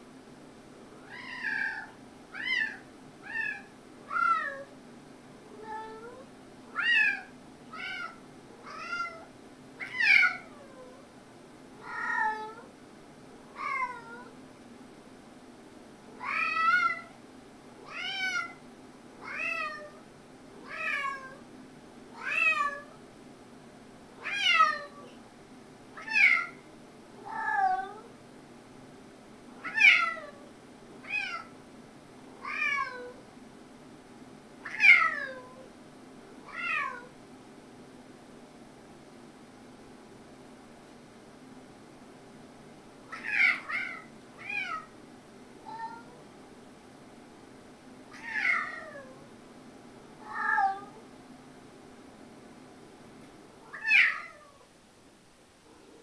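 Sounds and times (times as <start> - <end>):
cat meowing: 1.0 - 4.7, 6.8 - 11.0, 11.8 - 12.7, 13.6 - 14.3, 16.2 - 17.2, 17.9 - 18.6, 19.2 - 20.0, 20.6 - 21.4, 22.2 - 22.9, 24.2 - 25.1, 26.0 - 26.6, 27.2 - 28.1, 29.6 - 30.4, 31.0 - 31.5, 32.4 - 33.2, 34.6 - 35.6, 36.5 - 37.1, 43.1 - 44.9, 45.6 - 46.2, 48.1 - 49.2, 50.2 - 51.0, 53.6 - 54.7.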